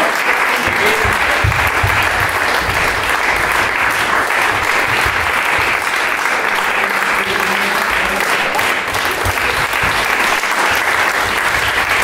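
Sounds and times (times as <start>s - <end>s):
audience applauding: 0.0s - 12.0s
low thuds: 0.7s - 5.8s.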